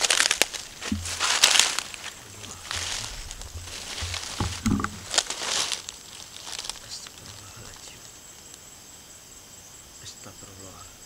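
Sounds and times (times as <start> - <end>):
footsteps crunching through dry grass: 0.0 - 7.8
rustling undergrowth: 0.0 - 9.6.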